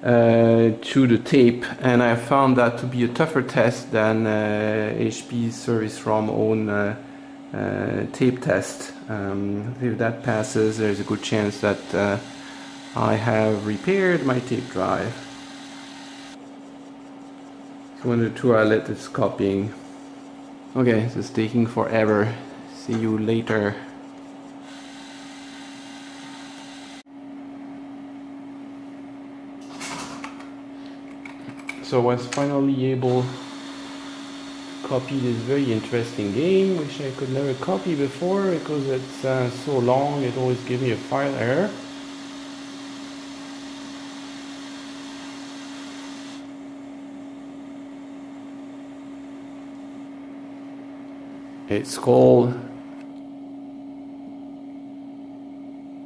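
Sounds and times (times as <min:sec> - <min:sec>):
computer hum with constant tone: 0:00.0 - 0:56.0
tape drive motor whir: 0:09.2 - 0:27.0, 0:32.3 - 0:47.3
high hiss: 0:10.4 - 0:16.4.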